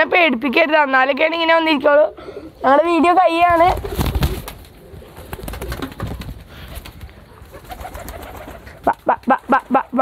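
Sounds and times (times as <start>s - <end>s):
pigeon wings flapping: 3.4s - 9.9s.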